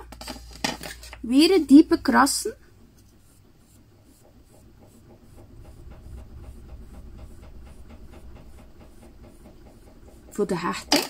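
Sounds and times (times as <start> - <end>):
knife scratching clay: 3.0 - 5.4.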